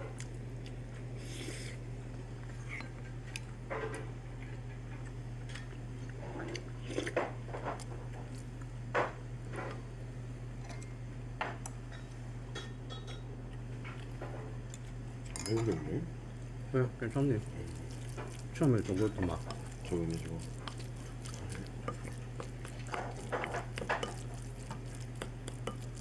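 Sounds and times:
spoon scraping ceramic bowl: 17.9s - 26.0s.

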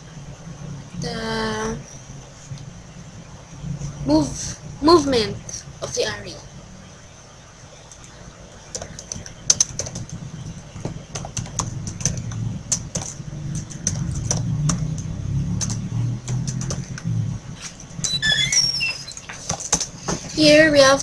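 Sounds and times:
keyboard typing clicks: 8.7s - 10.2s, 10.8s - 17.0s.

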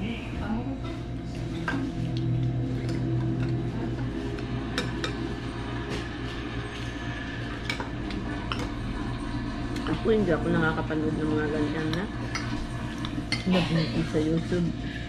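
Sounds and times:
steady low hum: 0.0s - 15.0s
utensils clinking on ceramic bowls: 11.8s - 14.5s.

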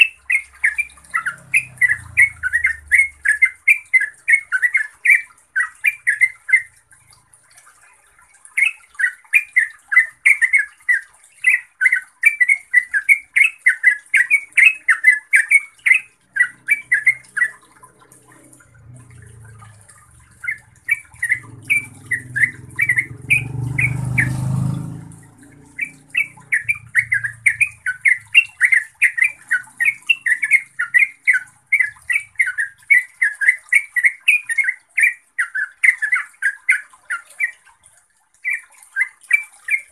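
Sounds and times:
bird singing chattering notes: 0.0s - 6.9s, 8.5s - 37.6s.

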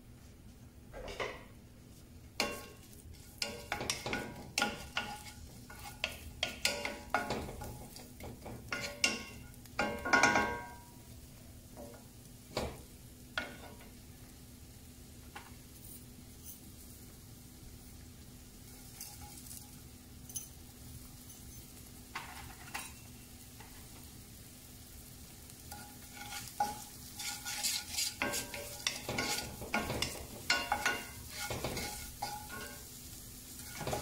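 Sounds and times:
onions sizzling in oil: 1.9s - 34.0s
wooden spoon scraping a pan: 2.4s - 10.6s, 18.6s - 19.8s, 25.7s - 34.0s.

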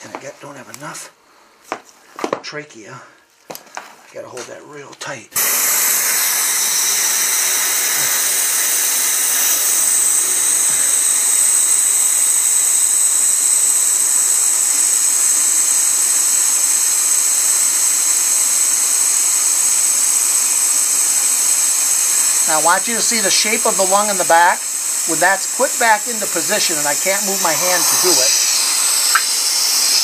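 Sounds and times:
air hissing into trachea: 5.4s - 30.0s.

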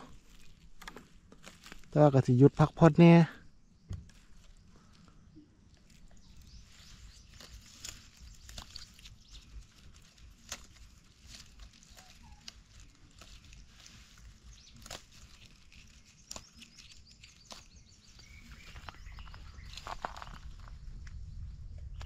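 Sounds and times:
footsteps in dry leaves: 0.0s - 3.1s, 4.1s - 20.8s
low rumble: 18.9s - 22.0s.

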